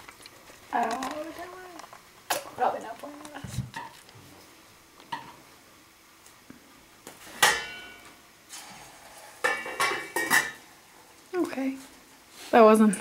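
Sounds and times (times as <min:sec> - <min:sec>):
metal utensil clanking on frying pan: 0:07.4 - 0:08.0.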